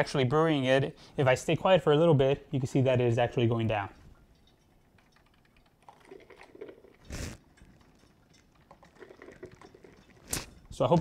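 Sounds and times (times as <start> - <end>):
coffee maker gurgling: 5.9 - 8.0, 8.6 - 11.0.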